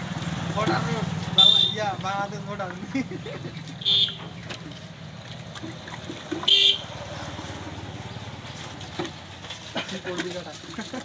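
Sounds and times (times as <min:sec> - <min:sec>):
low rumble of traffic: 0:00.0 - 0:11.0
vehicle horn toots: 0:01.4 - 0:01.9, 0:03.8 - 0:04.3, 0:06.4 - 0:06.9.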